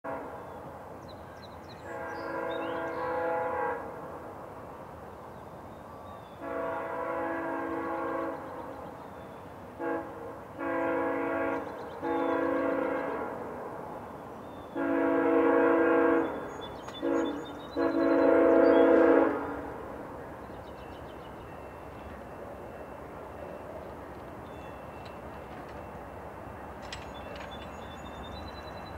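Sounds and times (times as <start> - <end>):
locomotive horn blasts: 0.1 - 0.4, 1.8 - 4.0, 6.4 - 8.7, 9.7 - 13.5, 14.7 - 19.8.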